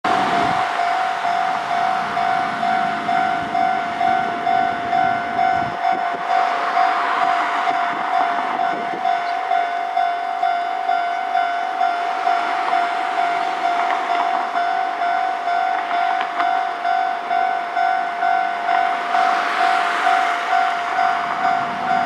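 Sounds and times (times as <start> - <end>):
diesel railcar running: 0.0 - 22.0
level-crossing alarm bell dinging: 0.1 - 22.0.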